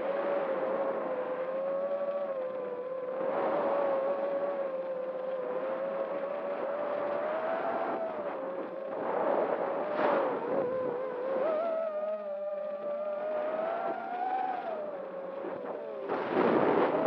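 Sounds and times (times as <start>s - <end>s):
drone motors whining: 1.5s - 17.0s.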